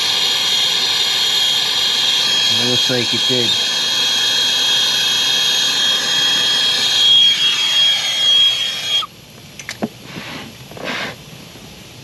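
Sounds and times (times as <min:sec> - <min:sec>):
thin high whistle: 0:00.1 - 0:09.1.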